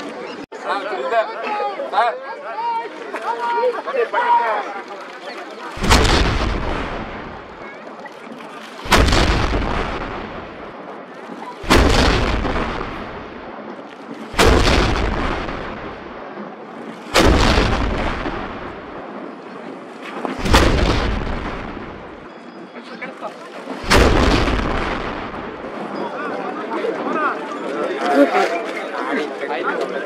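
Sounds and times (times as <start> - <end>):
cannon blasts with rolling rumble: 5.8 - 7.7, 8.8 - 22.5, 23.8 - 25.9.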